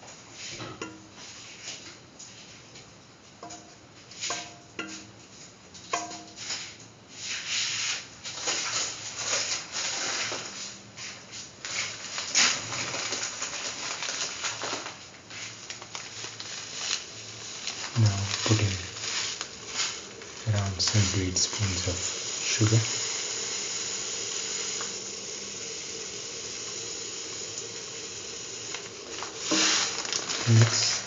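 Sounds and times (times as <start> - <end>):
food bubbling and sizzling in pan: 11.7 - 31.0.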